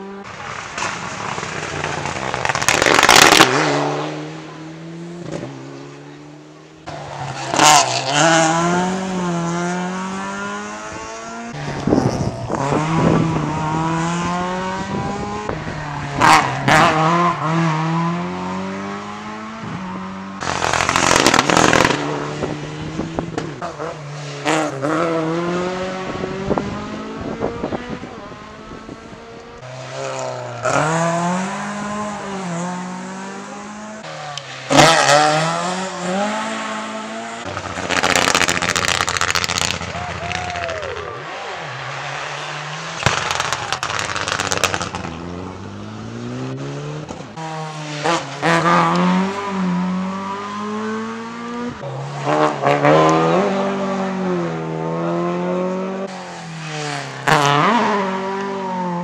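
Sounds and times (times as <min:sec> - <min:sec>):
rally cars accelerating: 0:00.0 - 0:59.0
loud sharp cracks: 0:00.7 - 0:03.8, 0:20.4 - 0:22.1, 0:43.0 - 0:45.1.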